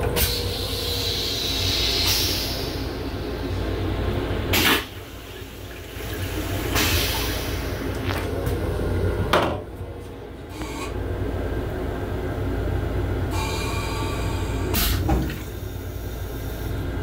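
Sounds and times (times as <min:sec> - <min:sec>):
toilet flushing: 0:00.0 - 0:09.4, 0:13.2 - 0:17.0
low train rumble: 0:00.0 - 0:14.7, 0:15.3 - 0:17.0.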